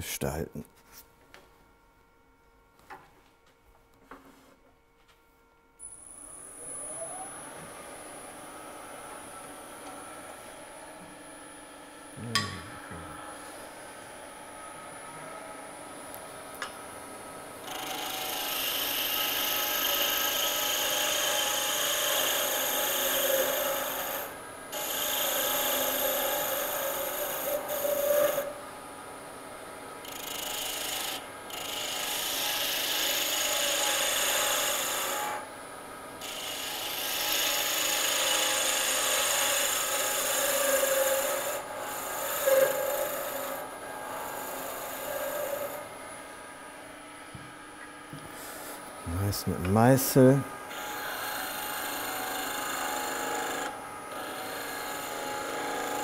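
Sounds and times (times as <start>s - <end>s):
chisel cutting wood on a lathe: 17.6s - 28.6s, 30.0s - 35.5s, 36.2s - 46.0s, 48.5s - 56.0s.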